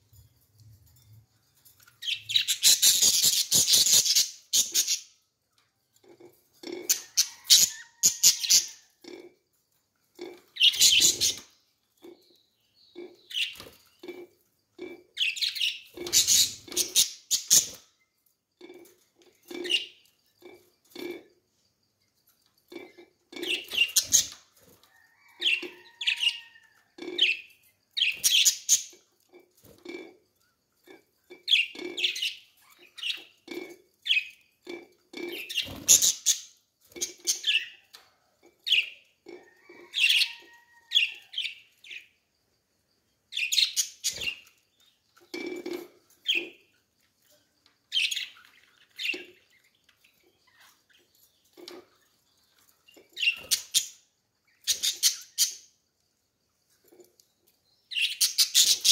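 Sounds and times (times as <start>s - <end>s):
budgerigars chirping and chattering: 2.0s - 5.1s, 10.2s - 12.2s, 14.8s - 17.8s, 28.0s - 29.0s, 47.9s - 51.9s, 54.5s - 55.6s, 57.9s - 58.9s.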